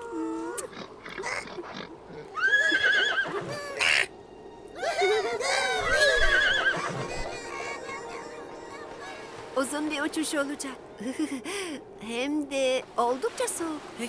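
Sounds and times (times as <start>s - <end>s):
horse-like whinnying: 1.2s - 3.6s, 5.9s - 7.1s.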